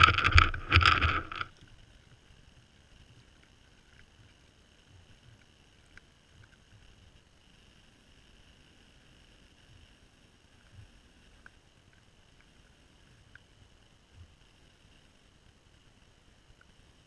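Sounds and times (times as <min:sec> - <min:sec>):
tiny clicks: 0:00.0 - 0:01.7.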